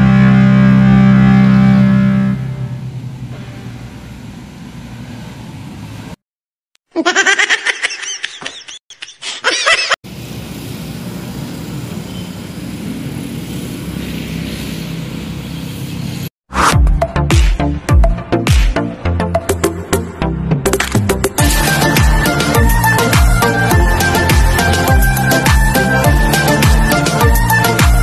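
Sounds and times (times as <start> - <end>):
street traffic: 10.1 - 16.3.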